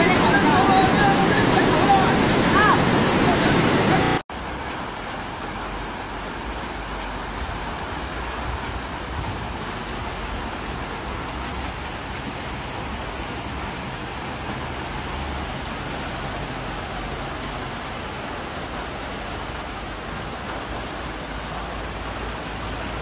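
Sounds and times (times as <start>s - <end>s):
heavy rain hissing: 0.0s - 23.0s.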